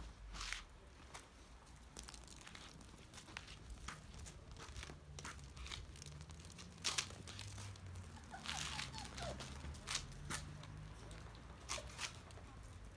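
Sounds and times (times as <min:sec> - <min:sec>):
puppy paws clicking on stone: 0:01.7 - 0:12.8.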